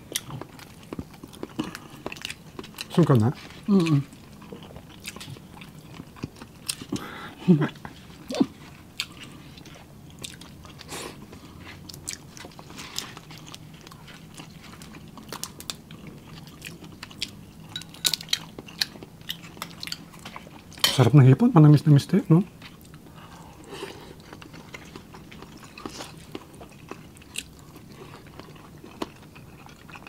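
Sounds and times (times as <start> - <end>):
chewing and crunching: 0.0 - 20.8, 22.4 - 30.0.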